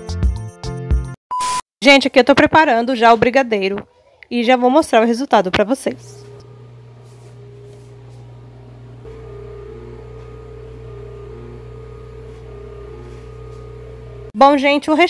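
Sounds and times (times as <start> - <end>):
electric motor humming: 6.0 - 14.4.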